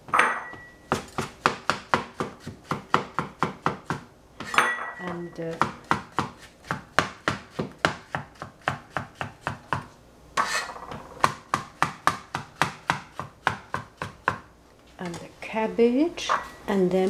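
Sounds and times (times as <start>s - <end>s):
knife chopping on cutting board: 0.9s - 14.5s.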